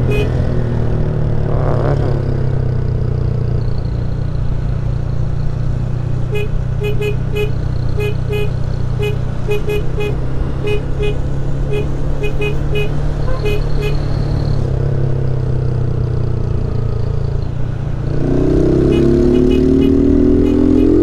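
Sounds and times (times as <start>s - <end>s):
short horn beeps: 0.0s - 0.3s, 6.3s - 14.1s, 18.9s - 21.0s
motorcycle engine running: 0.0s - 21.0s.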